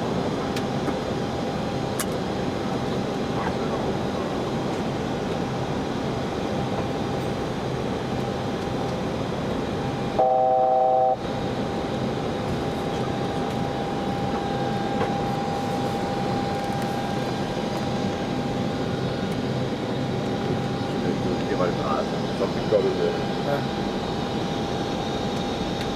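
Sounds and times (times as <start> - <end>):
loud electronic multi-pitch tone: 10.2 - 11.2
rushing cockpit noise: 10.2 - 25.9.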